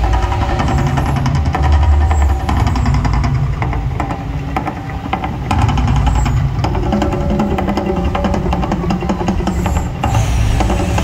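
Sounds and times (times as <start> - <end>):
deep rumble: 0.0 - 11.0
percussive clatter of fire jets: 0.0 - 11.0.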